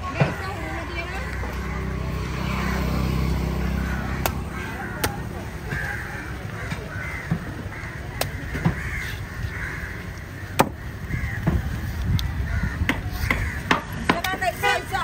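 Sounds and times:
crows cawing: 1.2 - 14.1
sharp knocks: 10.6 - 10.8.

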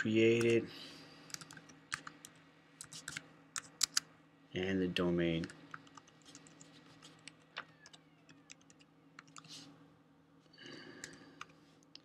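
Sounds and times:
typing on computer keyboard: 1.3 - 4.0, 5.4 - 9.5.

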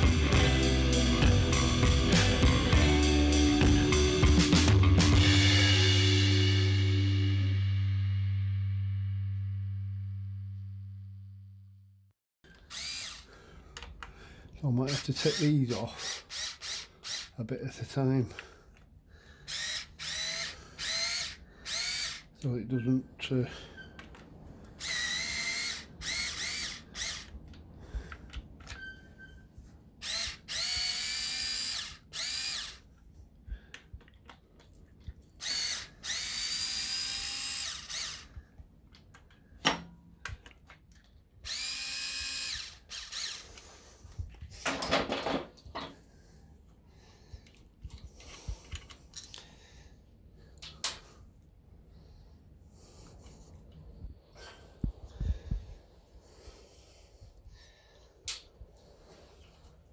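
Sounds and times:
electric screwdriver motor whining: 12.5 - 13.3, 14.9 - 17.4, 19.5 - 22.3, 24.8 - 27.4, 30.0 - 32.8, 35.4 - 38.4, 41.4 - 43.7.

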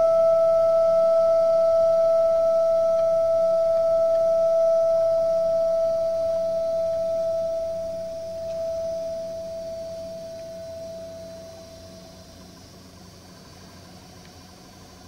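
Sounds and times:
ensemble holding high note: 5.0 - 12.3.

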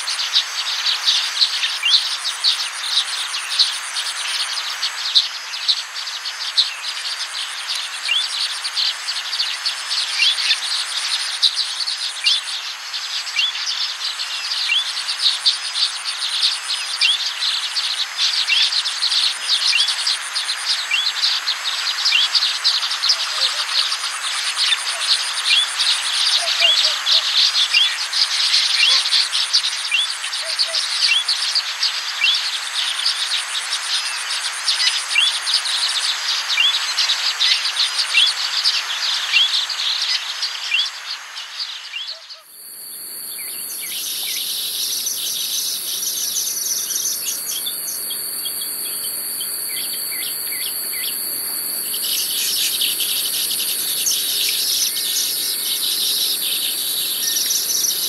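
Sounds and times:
high insect drone: 0.0 - 58.0
birds chirping: 22.1 - 30.8, 40.1 - 58.0.

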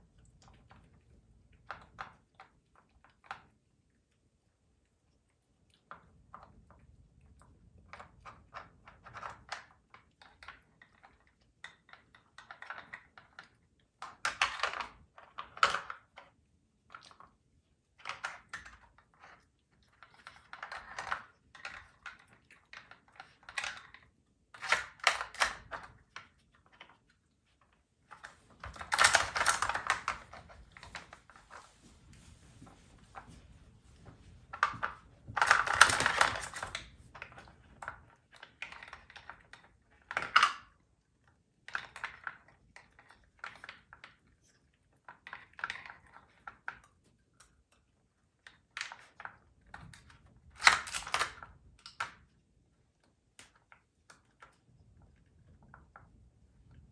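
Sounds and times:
plastic puzzle feeder clicking: 18.0 - 27.0, 28.1 - 31.1, 34.5 - 40.7, 50.0 - 52.3.

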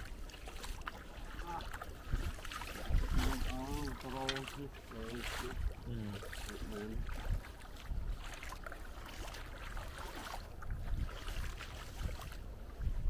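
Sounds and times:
splashing steps in shallow water: 0.0 - 12.9.

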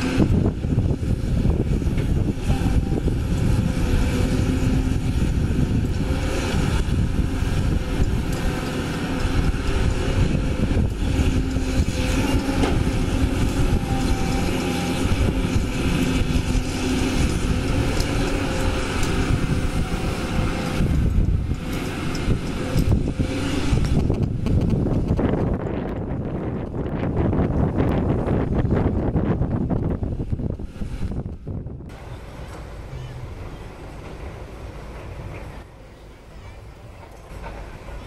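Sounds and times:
excavator diesel engine running: 0.0 - 38.0.

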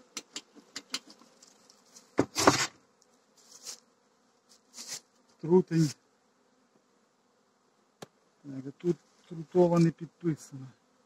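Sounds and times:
honeybees buzzing: 0.0 - 11.0
soft hisses: 3.3 - 3.9, 4.5 - 6.0.

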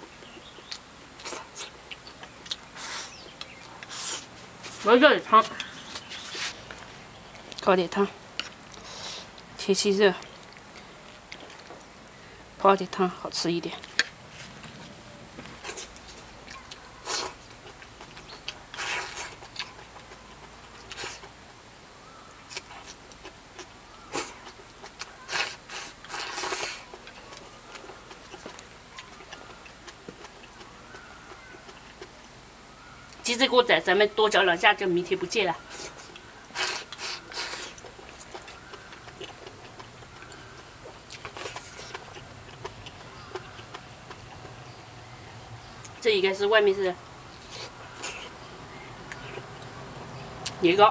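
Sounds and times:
person chewing food: 0.2 - 4.8, 8.3 - 9.6, 10.2 - 11.9, 13.8 - 21.6, 22.4 - 32.3, 35.6 - 44.7, 47.3 - 49.8.

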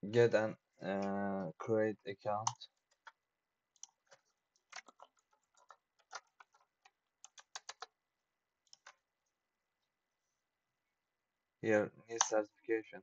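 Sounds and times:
faint keyboard typing: 0.8 - 1.3, 2.4 - 8.0, 8.6 - 9.4, 12.1 - 12.4.

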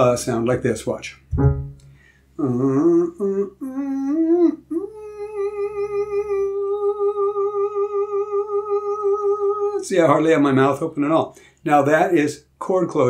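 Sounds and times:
man singing vocal exercise: 2.4 - 9.9.

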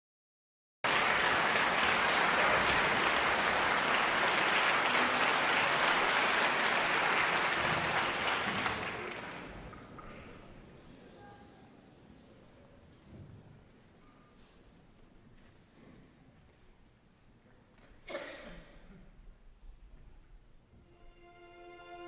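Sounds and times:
audience applauding: 0.8 - 10.2.

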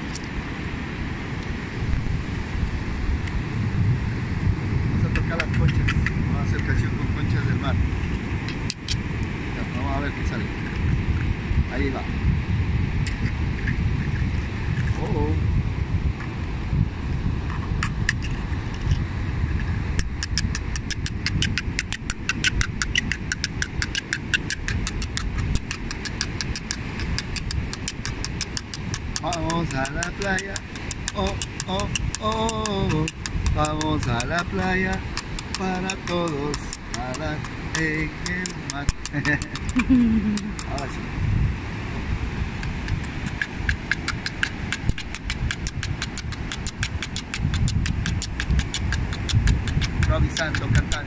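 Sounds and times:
surf: 0.0 - 45.9
wind: 0.0 - 51.0
seashells clicking together: 5.2 - 6.2, 8.5 - 9.0, 17.5 - 19.0, 20.0 - 40.9, 42.6 - 51.0.

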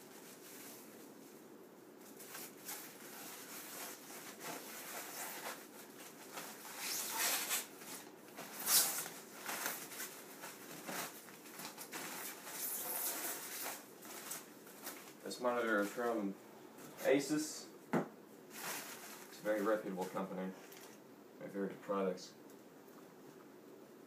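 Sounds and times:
plastic bag crinkling: 2.0 - 16.2.

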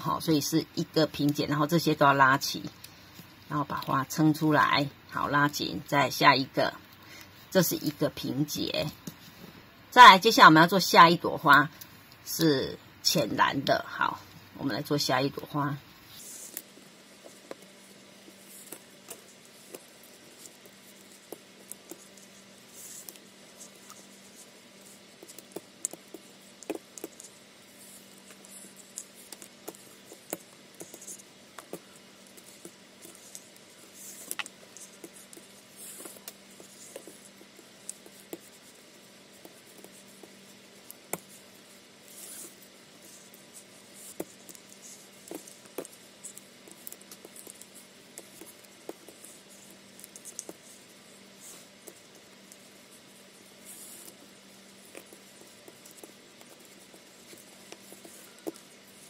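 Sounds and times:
faint steady hum: 0.0 - 59.0
small clicks and taps: 25.2 - 27.3, 28.1 - 38.6.

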